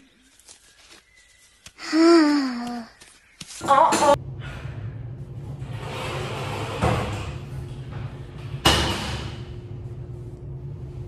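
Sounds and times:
steady low hum: 4.1 - 11.0.

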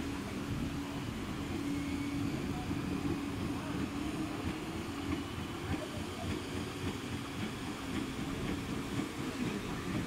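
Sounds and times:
electric train motor hum: 0.0 - 10.0
train wheels rumbling on track: 0.0 - 10.0.

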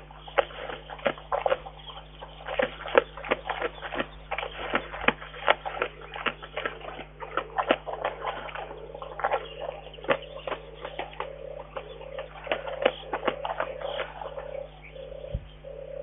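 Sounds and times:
bear smacking and crunching food: 0.0 - 14.4.

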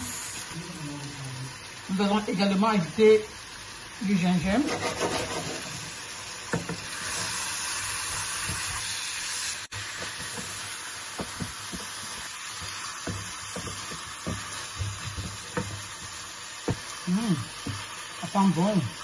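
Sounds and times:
food sizzling in a frying pan: 0.0 - 19.0
spatula scraping a pan: 4.6 - 5.9.

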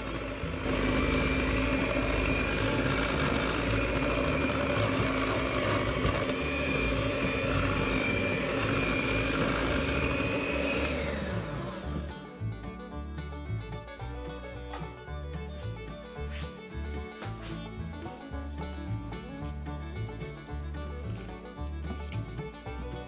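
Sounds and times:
electric hand mixer running: 0.0 - 12.7.

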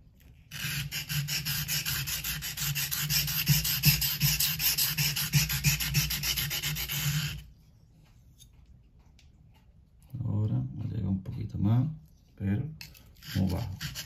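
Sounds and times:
knife blade scraping on whetstone: 0.5 - 7.4, 12.8 - 14.0.

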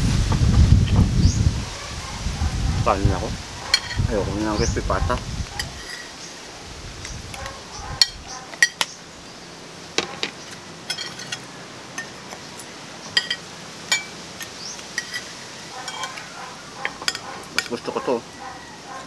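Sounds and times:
metal spoons clinking on ceramic plates: 3.7 - 4.0, 5.6 - 6.2, 7.4 - 8.9, 10.0 - 18.0.

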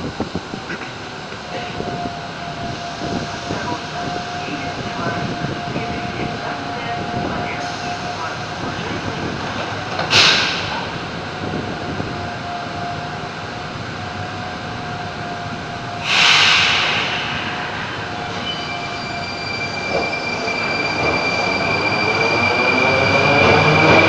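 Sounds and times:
train air hiss: 10.1 - 11.0, 16.0 - 18.4.

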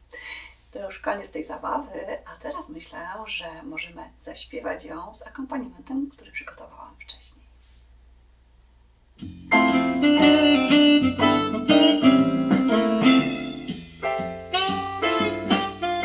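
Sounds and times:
electronic keyboard accompaniment: 9.2 - 16.0.

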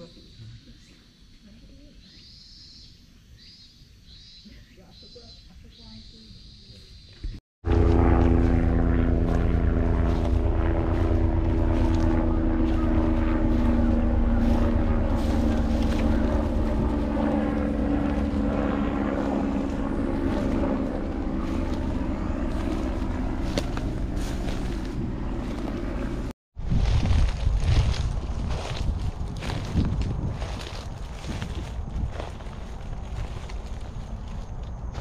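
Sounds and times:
engine droning: 7.6 - 26.3
wind noise: 9.4 - 35.0.

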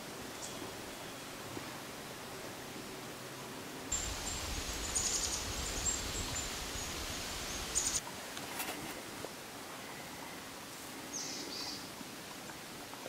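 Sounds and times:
steady hiss: 3.8 - 8.4
wind rumble on microphone: 3.9 - 8.0.

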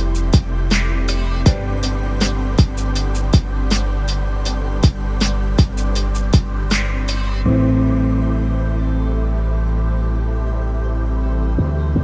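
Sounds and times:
deep kick drum: 0.0 - 0.8, 1.4 - 1.9, 2.5 - 3.8, 4.8 - 6.7
background music with drum beat: 0.0 - 7.4.

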